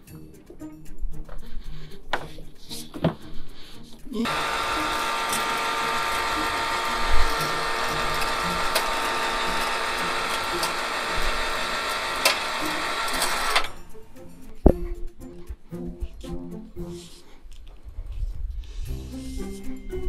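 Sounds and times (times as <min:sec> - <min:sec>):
electric hoist motor whining: 0:04.2 - 0:13.9.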